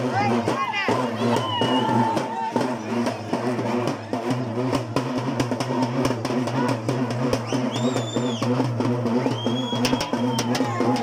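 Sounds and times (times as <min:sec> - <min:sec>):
procession music with drum beat: 0:00.0 - 0:11.0
shrill whistle: 0:07.4 - 0:10.6.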